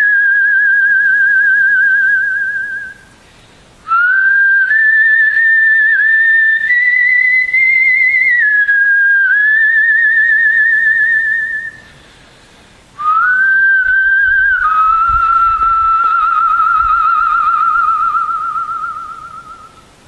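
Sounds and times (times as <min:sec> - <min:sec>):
whistled melody: 0:00.0 - 0:03.1, 0:13.0 - 0:20.0.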